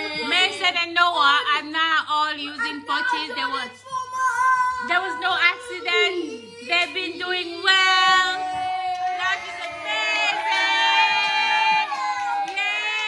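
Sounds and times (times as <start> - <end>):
group singing: 0.0 - 0.6, 6.7 - 13.0
group cheering: 7.6 - 13.0.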